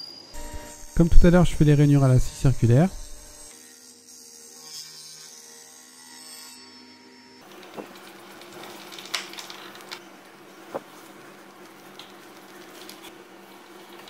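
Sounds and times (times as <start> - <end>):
faint machine hum: 0.0 - 3.5, 6.9 - 14.0.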